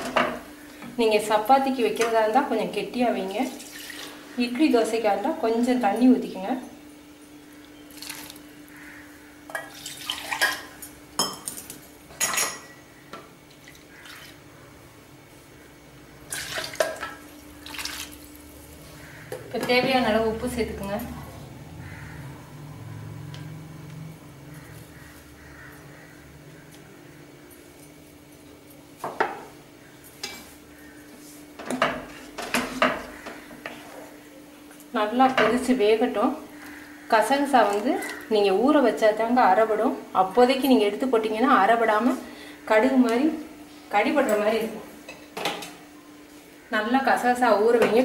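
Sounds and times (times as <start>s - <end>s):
steady low hum: 16.9s - 45.3s.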